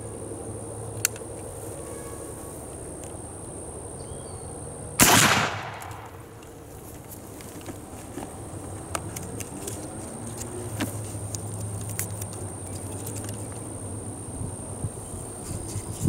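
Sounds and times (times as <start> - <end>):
rifle shot echoing: 5.0 - 6.4.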